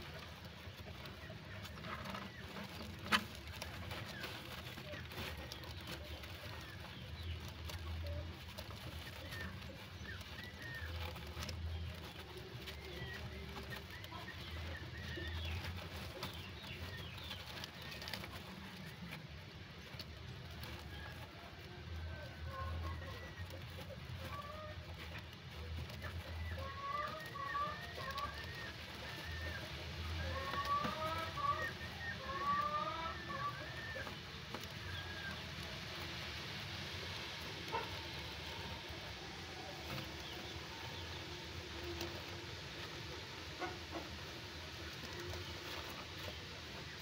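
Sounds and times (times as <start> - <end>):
low background murmur: 0.0 - 47.0.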